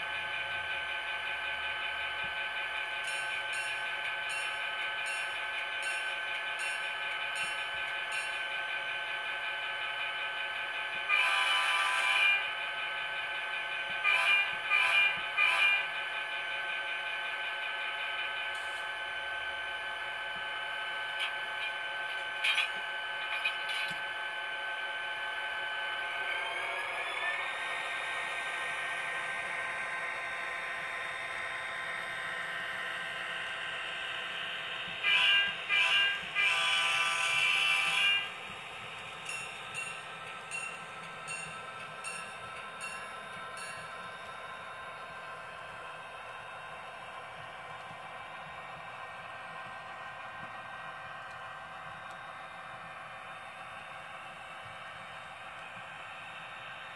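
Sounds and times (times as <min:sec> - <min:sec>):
locomotive horn blasts: 0:35.1 - 0:38.2.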